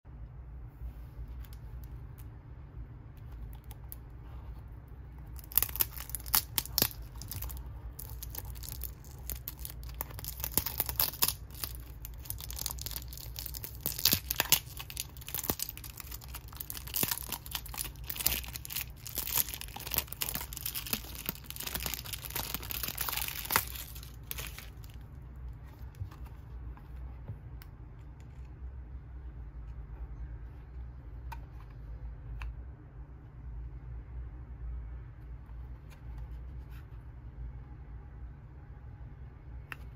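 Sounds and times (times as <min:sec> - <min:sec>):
low steady hum: 0:00.0 - 0:39.9
plastic wrapping tearing: 0:05.4 - 0:25.0.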